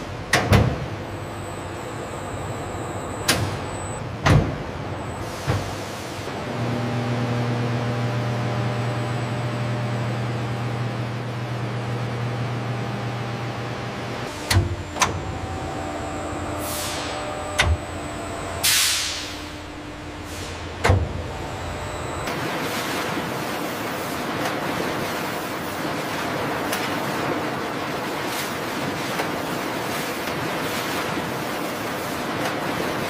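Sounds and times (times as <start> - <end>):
machinery hum: 0.0 - 33.0
machine clunks: 3.2 - 4.7, 14.3 - 22.5
steam hissing: 16.6 - 17.2.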